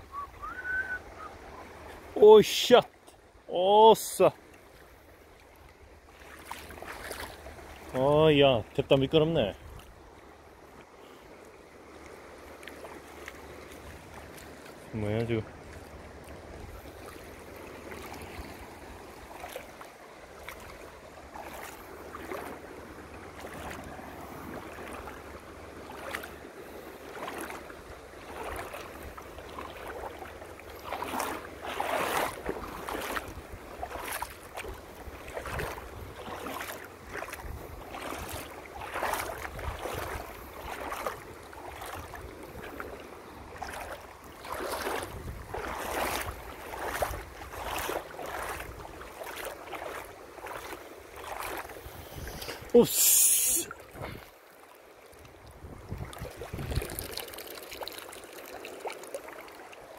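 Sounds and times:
wind rumbling on microphone: 0:31.8 - 0:36.4, 0:37.0 - 0:43.6, 0:44.5 - 0:49.1, 0:51.5 - 0:52.8, 0:55.4 - 0:57.5.

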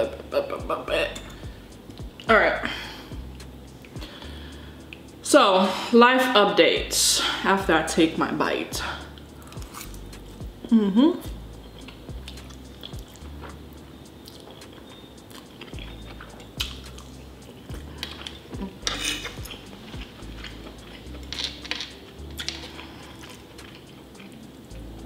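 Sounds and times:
person chewing noodles: 0:09.1 - 0:10.4, 0:11.6 - 0:13.6, 0:14.2 - 0:24.5.

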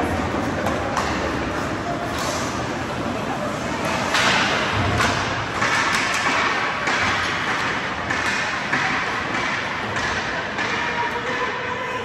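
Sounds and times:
hockey sticks and puck knocking: 0:00.4 - 0:01.6, 0:03.8 - 0:11.6.

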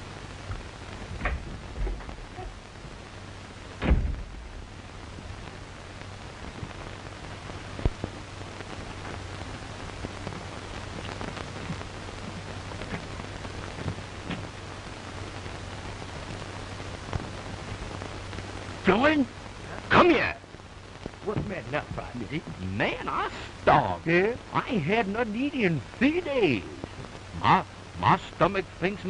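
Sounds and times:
low hum: 0:00.0 - 0:22.6
film soundtrack hiss and crackle: 0:00.0 - 0:29.0
loud thump: 0:03.8 - 0:04.7.

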